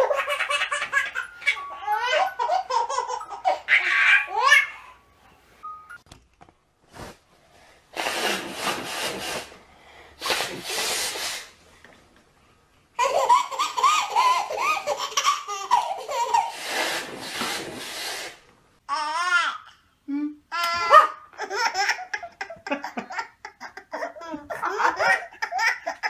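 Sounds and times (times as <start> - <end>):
baby belly laughter: 0.0 - 4.9, 13.0 - 16.6, 20.7 - 26.0
baby squealing laughs: 0.0 - 5.0, 13.0 - 16.6, 20.6 - 26.0
hissy nose blows: 7.9 - 11.6, 16.4 - 18.5.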